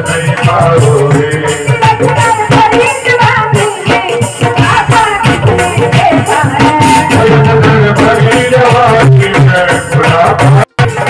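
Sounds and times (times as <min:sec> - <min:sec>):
instrumental accompaniment: 0:00.0 - 0:11.0
steady drum beat: 0:00.0 - 0:11.0
woman singing into a microphone: 0:00.3 - 0:08.3.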